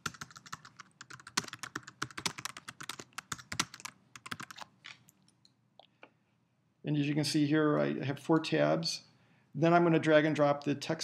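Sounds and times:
typing on computer keyboard: 0:00.0 - 0:04.7.

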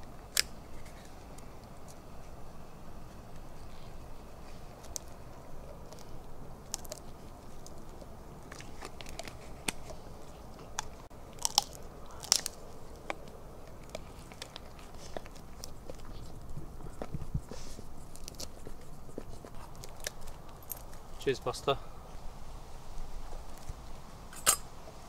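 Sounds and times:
dog chewing on stick: 0:00.0 - 0:21.2
wood cracking: 0:10.7 - 0:16.1.

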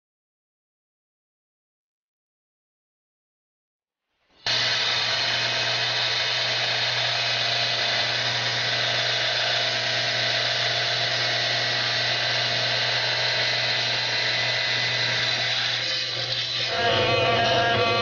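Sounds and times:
wet saw cutting rock: 0:04.5 - 0:18.0.

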